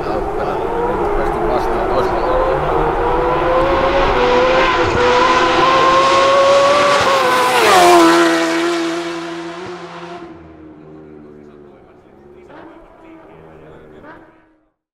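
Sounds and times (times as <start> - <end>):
motorcycle passing at high revs: 0.0 - 14.6.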